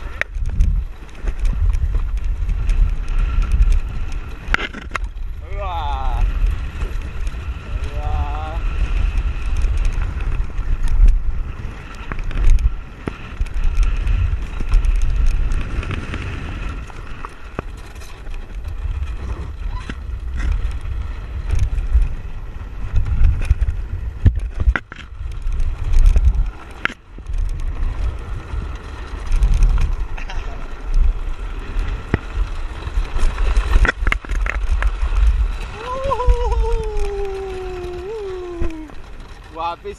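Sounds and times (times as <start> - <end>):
wind buffeting microphone: 0.0 - 39.9
land yacht rattling over sand: 31.2 - 39.9.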